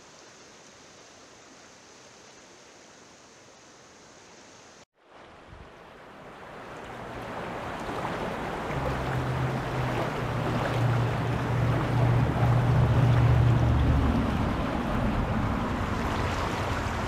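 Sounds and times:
floodwater rushing and churning: 0:05.0 - 0:17.0.

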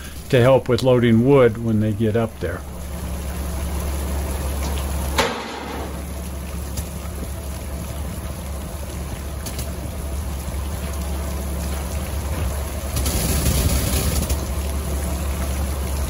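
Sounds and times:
steady low rumble: 0:00.0 - 0:16.0
water spattering down: 0:00.0 - 0:16.0.

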